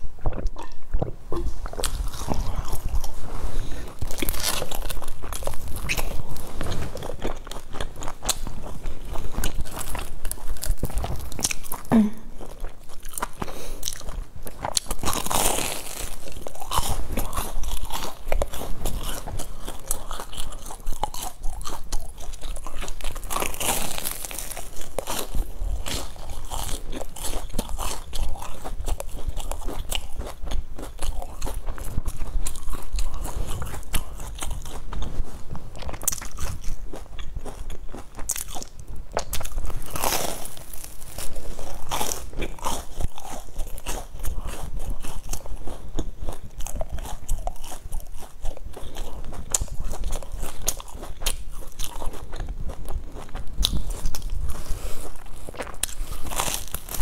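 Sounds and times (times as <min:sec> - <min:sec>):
chewing with crunches: 0:00.0 - 0:57.0
biting into crusty bread: 0:12.5 - 0:57.0.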